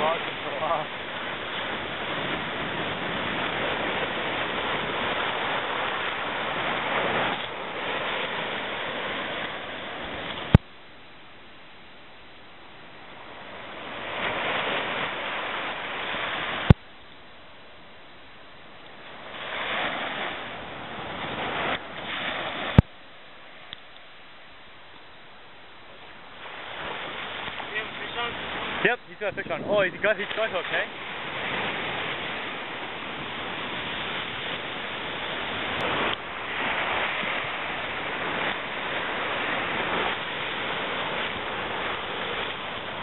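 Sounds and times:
wind on microphone: 0.0s - 10.6s, 26.4s - 43.0s
surf washing up beach: 0.0s - 43.0s.

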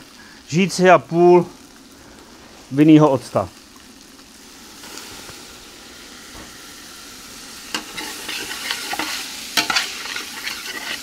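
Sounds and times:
food sizzling in a pot: 0.0s - 11.0s
spoon scraping a pot: 7.8s - 11.0s.

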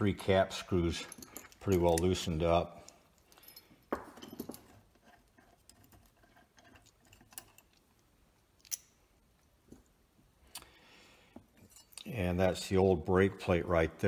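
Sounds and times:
metal screws clicking and clinking: 0.8s - 9.5s, 11.5s - 12.1s.

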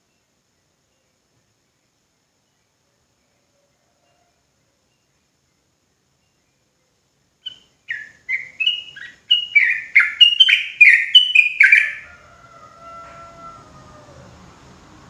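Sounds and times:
bird singing rapid falling notes: 7.4s - 12.1s.

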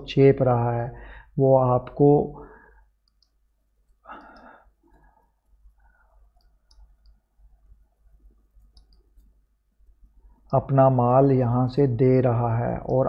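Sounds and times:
breath-like sound: 1.0s - 1.4s, 4.0s - 6.3s.

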